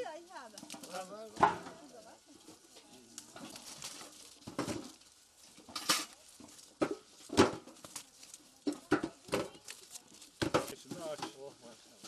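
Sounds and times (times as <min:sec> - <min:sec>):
rustling leaves and branches: 0:00.0 - 0:12.0
apples thudding into metal bucket: 0:00.6 - 0:01.9, 0:03.3 - 0:05.0, 0:05.6 - 0:08.0, 0:10.3 - 0:11.5.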